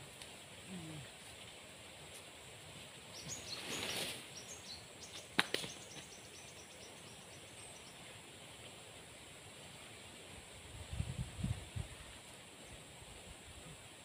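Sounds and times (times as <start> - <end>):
small birds chirping: 3.0 - 8.2.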